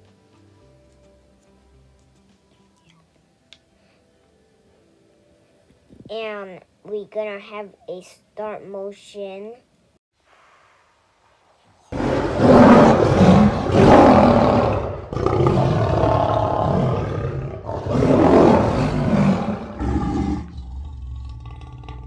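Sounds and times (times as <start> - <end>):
lion roaring: 11.9 - 22.0.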